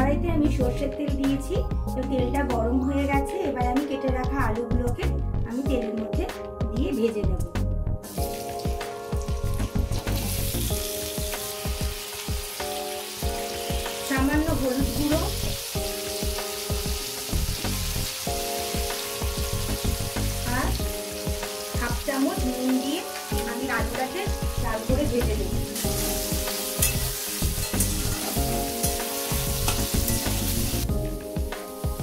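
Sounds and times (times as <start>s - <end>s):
background music with held notes: 0.0s - 32.0s
potatoes sizzling in hot oil: 8.0s - 32.0s.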